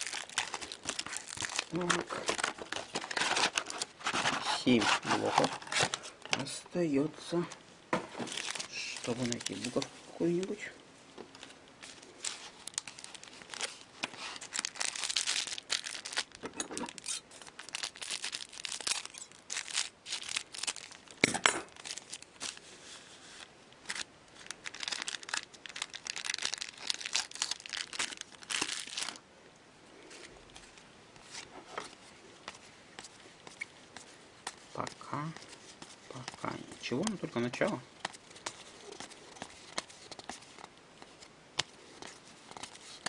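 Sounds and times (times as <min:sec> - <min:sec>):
foil wrapper tearing: 0:00.0 - 0:06.0, 0:08.3 - 0:09.9, 0:12.2 - 0:22.6, 0:23.8 - 0:29.2
foil wrappers crinkling: 0:00.0 - 0:06.2, 0:08.2 - 0:10.7, 0:11.3 - 0:29.2, 0:30.2 - 0:43.0.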